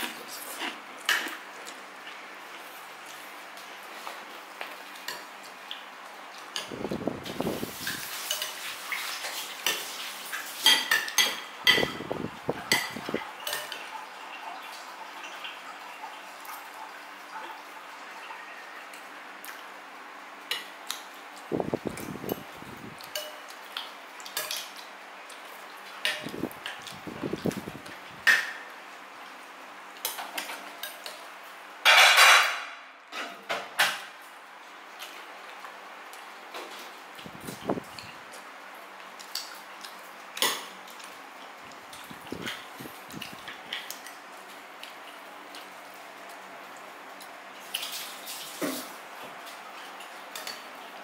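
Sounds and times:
cutlery clinking on dishes: 0:08.1 - 0:08.7, 0:10.6 - 0:12.0, 0:12.7 - 0:13.9, 0:23.0 - 0:23.6, 0:24.3 - 0:24.8, 0:26.0 - 0:26.3, 0:31.8 - 0:34.0, 0:40.4 - 0:40.7.

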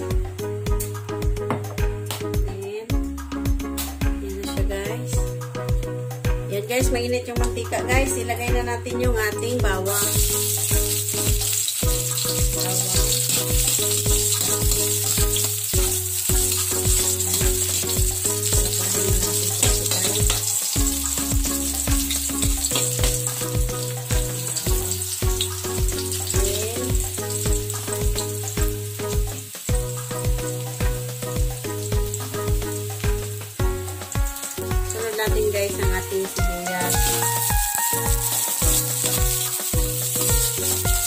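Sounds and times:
background music with beat: 0:00.0 - 0:41.0
garlic sizzling in hot oil: 0:09.2 - 0:41.0.

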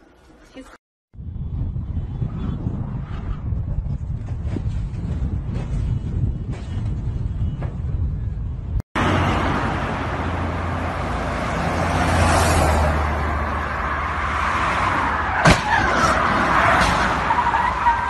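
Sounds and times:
cars rushing past: 0:09.0 - 0:18.0.

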